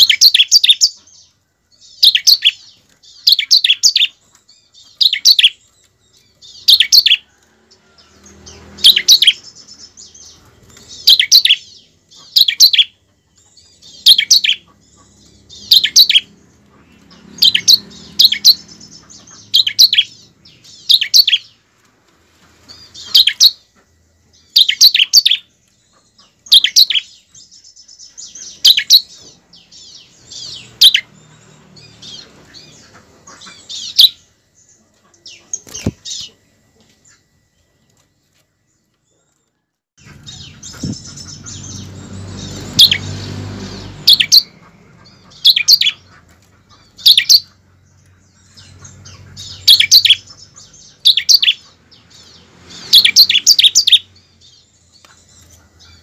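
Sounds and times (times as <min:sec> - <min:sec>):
bird calling with sharp high chirps: 0:00.0 - 0:07.4, 0:08.1 - 0:21.6, 0:22.5 - 0:56.0.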